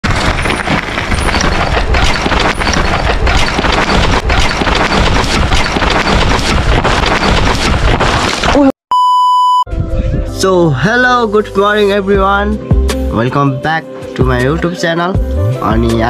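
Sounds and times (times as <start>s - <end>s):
mountain bike rattling and knocking: 0.0s - 8.2s.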